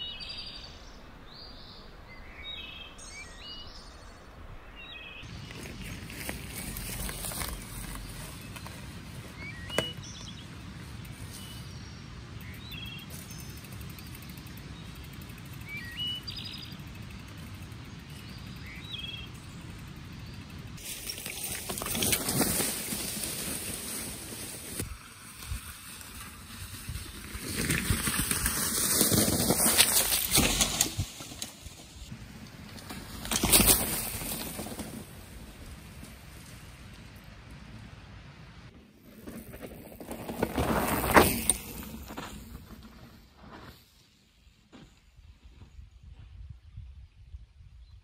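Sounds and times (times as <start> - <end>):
bike tyres crunching dry leaves: 5.2 - 37.3, 38.9 - 45.7
small birds chirping: 7.3 - 21.1.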